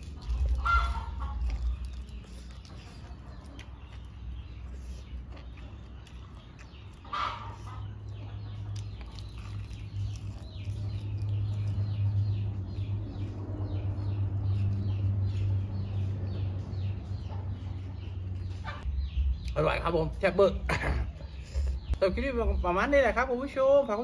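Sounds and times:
chickens clucking: 0.0 - 9.5, 10.4 - 18.9
chicks peeping: 0.0 - 19.5.

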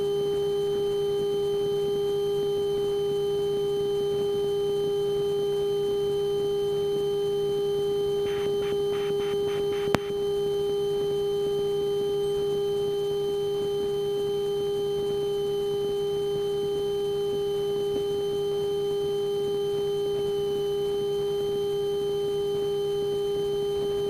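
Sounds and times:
faint ticks: 8.3 - 10.1
sharp click: 8.7 - 10.1.

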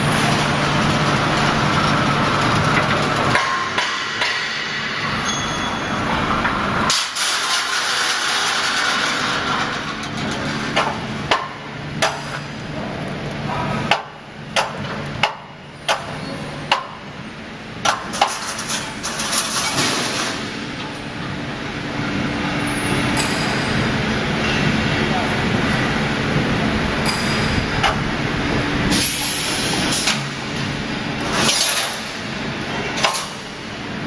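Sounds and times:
welding machine running: 0.0 - 3.9, 6.0 - 13.5.

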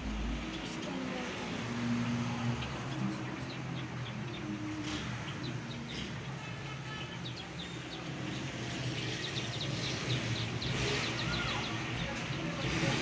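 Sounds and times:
sparrows chirping: 0.0 - 13.0.

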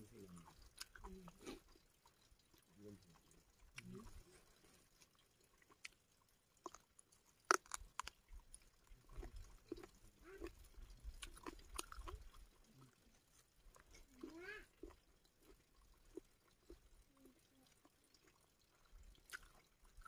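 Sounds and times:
quiet chewing: 0.0 - 20.0
mouth clicks and smacks: 7.4 - 12.4.

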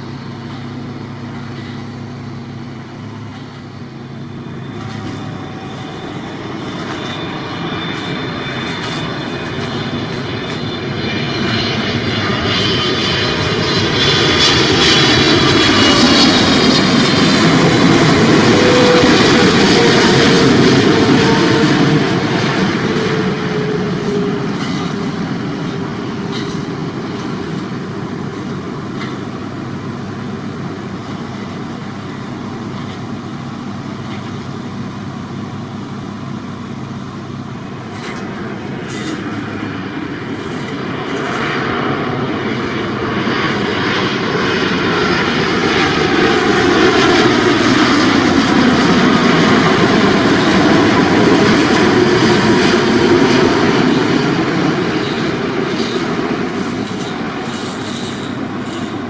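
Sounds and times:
jet engine whine: 0.0 - 59.0
jet engines passing overhead: 0.0 - 59.0.

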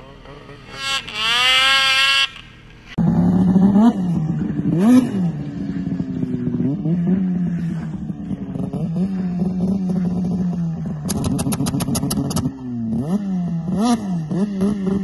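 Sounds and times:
snowmobile engine revving: 0.0 - 15.0
fast rattling clicks: 11.1 - 12.4.

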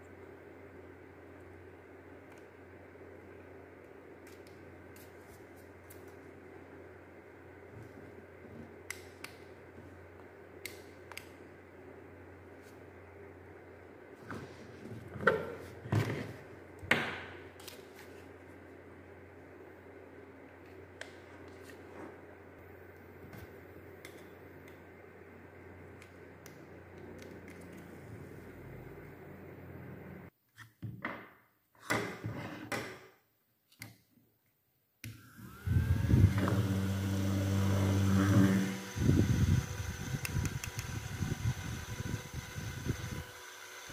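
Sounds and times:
small fan motor whining: 35.0 - 43.9.

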